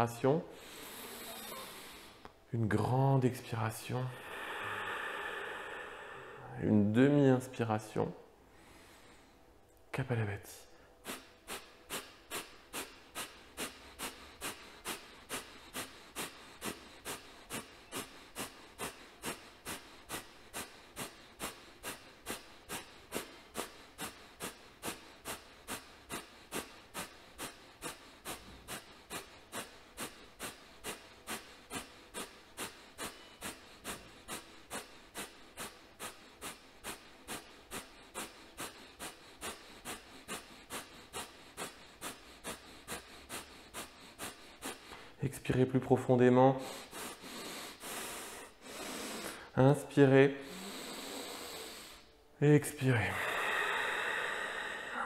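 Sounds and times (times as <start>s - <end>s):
forceful exhalations through nose: 10.9s - 45.2s, 46.6s - 49.6s, 50.4s - 52.1s.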